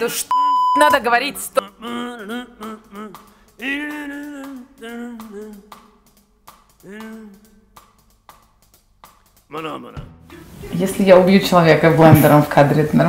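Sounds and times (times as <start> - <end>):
man making wordless vocal sounds: 1.4 - 6.2, 6.8 - 7.8, 9.5 - 10.6.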